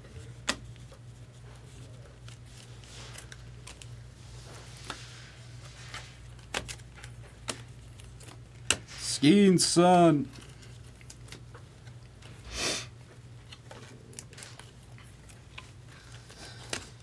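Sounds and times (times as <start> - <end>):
trading cards flipping and clicking: 0.2 - 1.1, 5.8 - 9.0.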